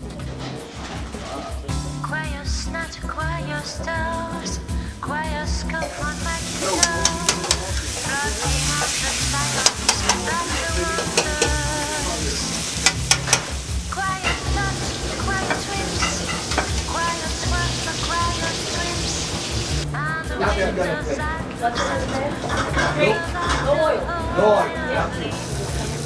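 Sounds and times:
background music: 0.0s - 26.0s
metal utensils clinking: 5.8s - 19.0s
meat sizzling in a frying pan: 5.8s - 19.8s, 25.3s - 26.0s.

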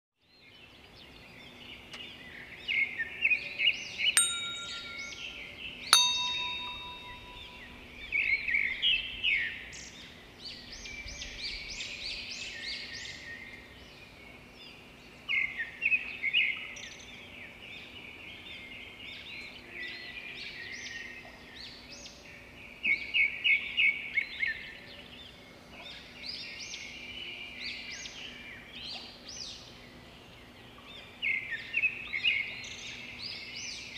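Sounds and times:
bright chime dings: 4.2s - 7.8s
birds chirping: 6.0s - 7.8s.

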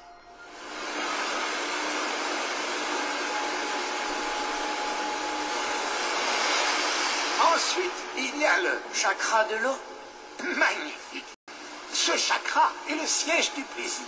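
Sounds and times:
faint hum: 0.0s - 14.0s
steady rushing noise: 0.6s - 11.2s.

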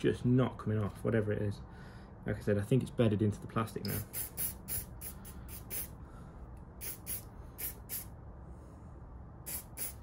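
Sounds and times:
aerosol can spraying: 3.9s - 6.0s, 6.8s - 8.1s, 9.4s - 10.0s.

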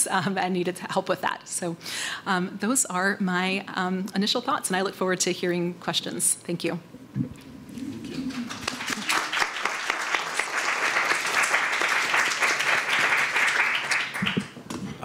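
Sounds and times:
audience applauding: 7.8s - 14.6s.

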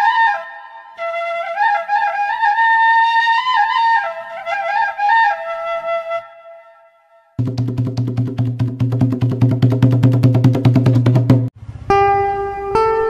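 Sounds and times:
solo flute melody: 0.0s - 7.4s, 11.9s - 13.0s.

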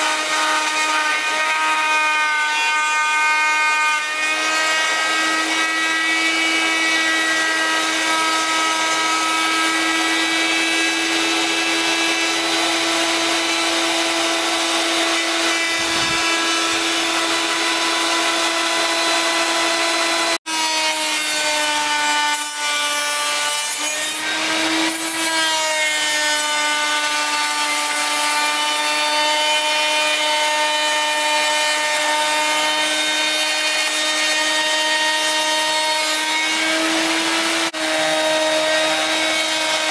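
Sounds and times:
electric router whining: 0.0s - 25.6s, 26.4s - 39.9s
wood hissing against router bit: 3.8s - 20.4s.

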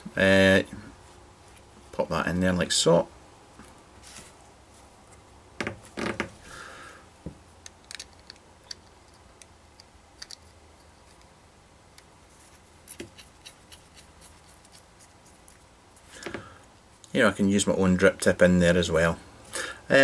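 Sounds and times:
small metal parts clicking: 7.6s - 11.3s.

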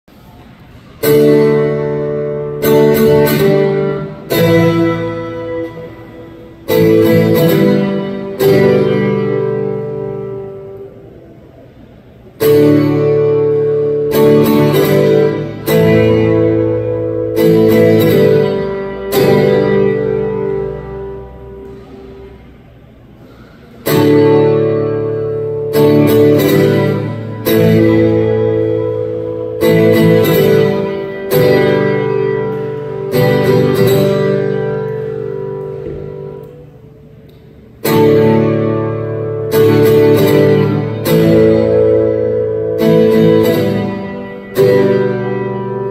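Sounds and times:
acoustic guitar strumming: 0.1s - 45.9s.

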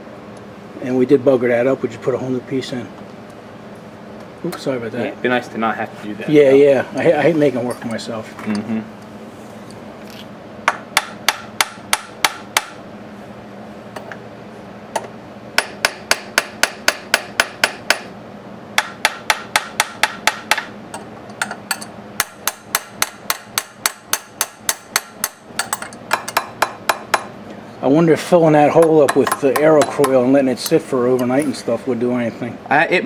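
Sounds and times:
hammer tapping on metal: 10.7s - 12.8s, 14.9s - 18.1s, 18.8s - 27.3s, 28.7s - 31.3s.

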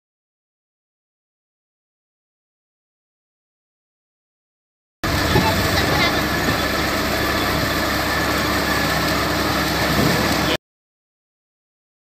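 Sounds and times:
compressed air blasting water: 5.0s - 10.6s
drilling rig running: 5.0s - 10.6s.

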